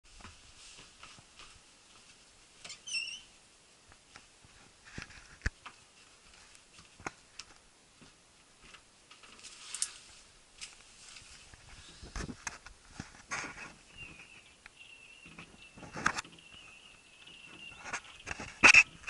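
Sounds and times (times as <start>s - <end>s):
quiet indoor footsteps: 0.1s - 19.0s
wavering squeak: 2.7s - 3.3s
brief rustle: 9.1s - 14.4s, 15.3s - 16.4s, 17.5s - 19.0s.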